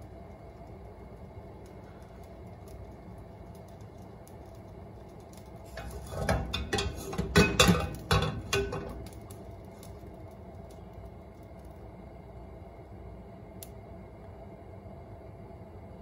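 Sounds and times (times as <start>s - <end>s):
faint steady background noise: 0.0s - 16.0s
wok clattering on metal grate: 5.7s - 9.2s.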